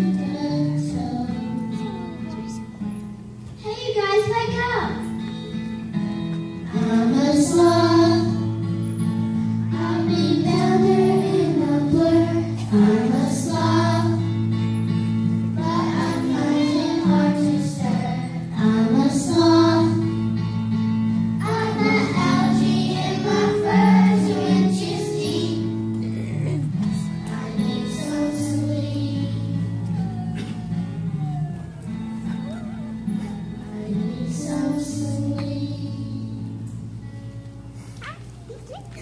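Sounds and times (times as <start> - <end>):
musical accompaniment: 4.8 - 39.0
children singing: 6.7 - 8.6, 9.7 - 14.4, 15.5 - 20.2, 21.4 - 25.8, 26.9 - 31.1, 31.9 - 36.4.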